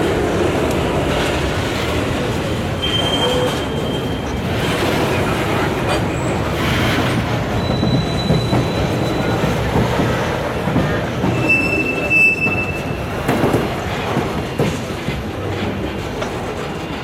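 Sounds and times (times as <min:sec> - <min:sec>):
railcar wheels rumbling on rails: 0:00.0 - 0:17.0
wheel squeals: 0:02.8 - 0:04.6, 0:07.4 - 0:09.6, 0:10.8 - 0:13.1.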